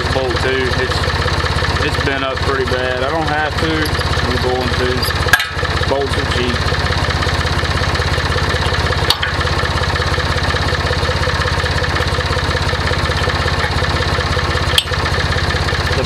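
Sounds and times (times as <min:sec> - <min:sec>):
engine idling: 0:00.0 - 0:16.0
sharp metallic click: 0:14.7 - 0:15.0.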